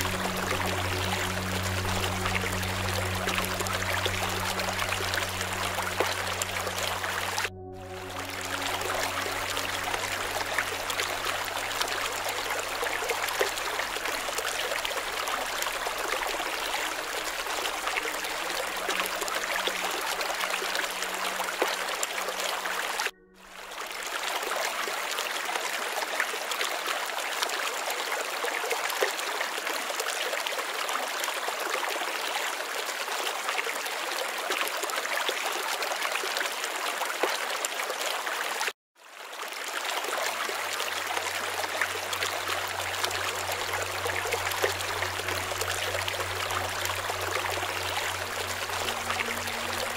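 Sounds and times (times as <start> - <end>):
stream trickling: 0.0 - 49.9.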